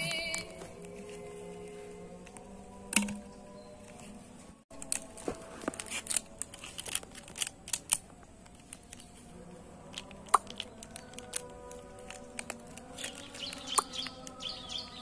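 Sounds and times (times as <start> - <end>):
foil sachet tearing and crinkling: 4.8 - 8.0, 10.0 - 14.4.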